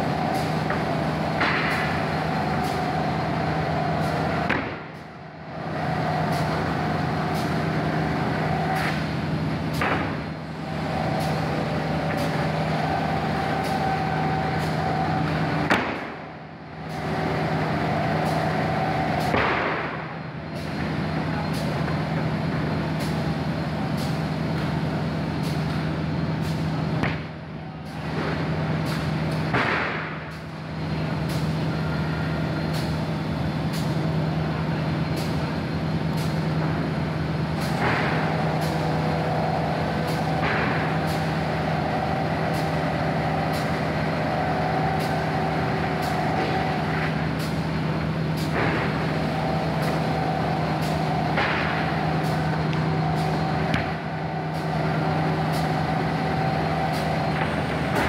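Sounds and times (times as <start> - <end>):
sanding machine humming: 38.1 - 58.0.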